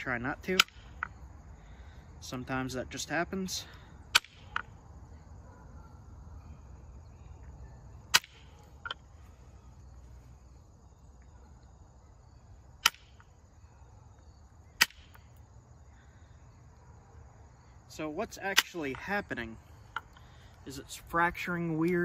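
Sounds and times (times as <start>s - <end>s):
antler striking flint clicks: 0.5s - 1.2s, 4.1s - 4.7s, 8.1s - 9.0s, 12.8s - 13.3s.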